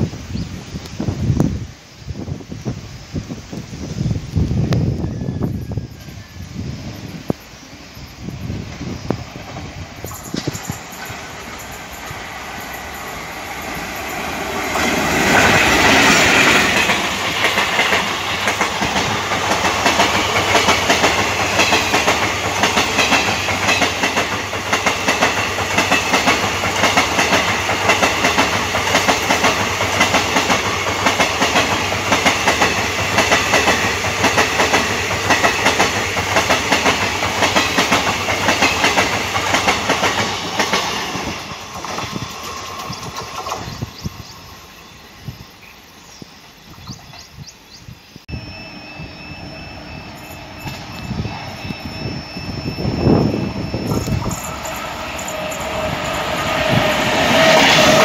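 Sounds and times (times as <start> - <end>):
electric locomotive passing: 0.0 - 58.0
train wheels clickety-clack: 8.6 - 44.4, 53.0 - 58.0.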